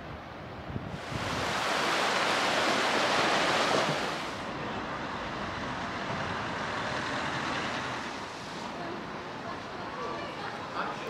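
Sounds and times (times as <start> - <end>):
sea waves washing ashore: 0.0 - 11.0
steady surf hiss: 0.0 - 11.0.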